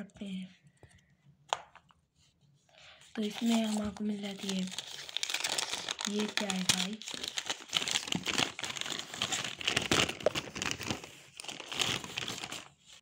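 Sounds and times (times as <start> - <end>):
paper crinkling and rustling: 3.0 - 13.0.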